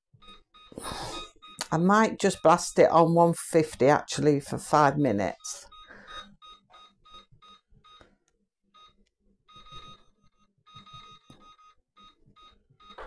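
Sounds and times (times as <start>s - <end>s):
faint electronic beeps: 5.1s - 8.0s, 8.8s - 13.0s.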